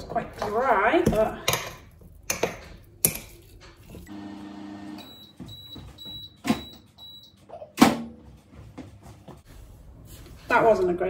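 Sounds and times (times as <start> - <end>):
microwave oven humming: 4.1 - 7.4.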